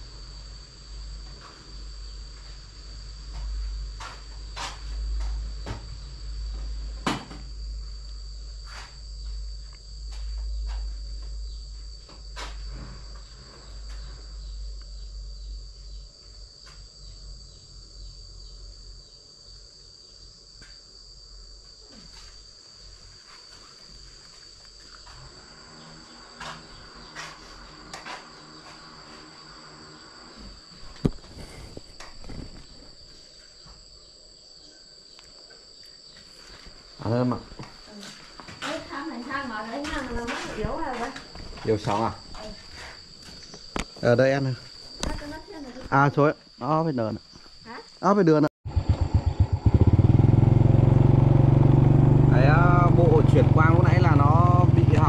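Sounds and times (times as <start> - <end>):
high-pitched insect trill: 0.0 - 50.0, 52.3 - 55.0.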